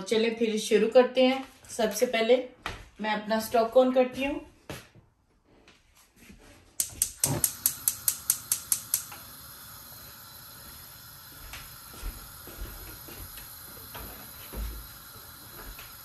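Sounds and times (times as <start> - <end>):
gas burner hissing: 6.8 - 16.0
gas stove igniter clicking: 6.8 - 16.0.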